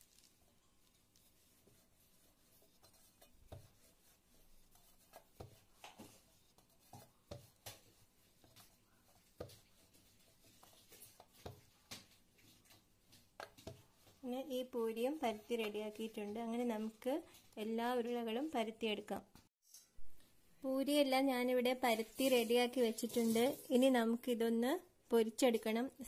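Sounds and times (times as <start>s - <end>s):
rolling pin rubbing dough: 0.8s - 14.0s.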